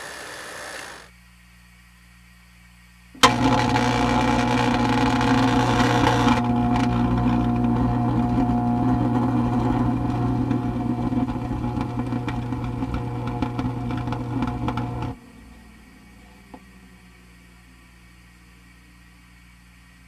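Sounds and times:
hiss: 0:00.0 - 0:01.1
microwave oven humming: 0:03.1 - 0:19.5.

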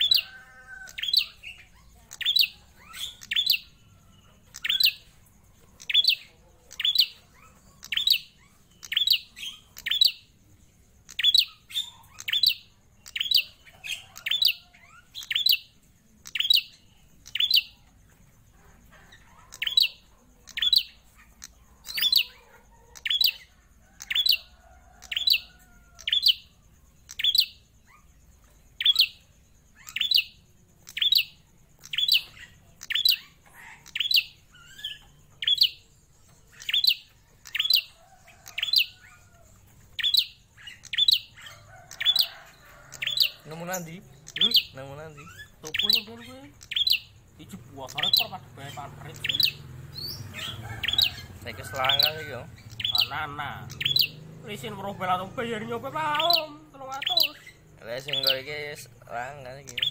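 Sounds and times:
songbird calling: 0:00.0 - 0:59.9.

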